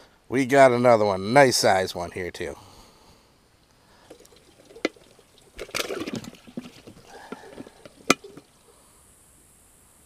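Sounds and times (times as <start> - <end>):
fish splashing in water: 4.0 - 8.6.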